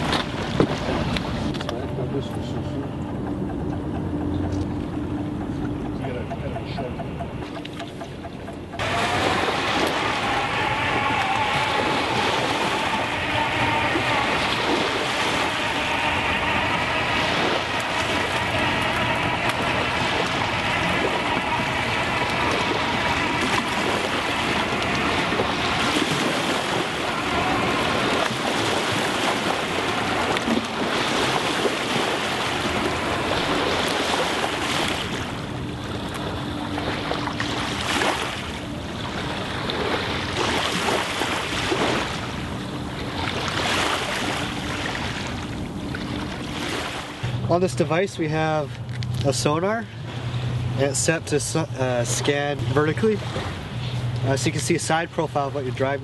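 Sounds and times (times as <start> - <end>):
small waves washing: 0.0 - 3.1, 4.4 - 56.0
low steady hum: 0.0 - 56.0
wind: 0.0 - 56.0
motor whine: 8.6 - 40.3.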